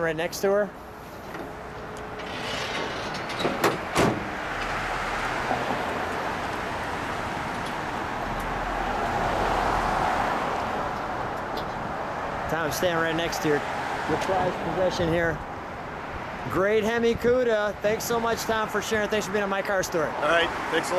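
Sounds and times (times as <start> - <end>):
street traffic hiss: 0.0 - 20.9
car hood clunking shut: 2.2 - 4.4.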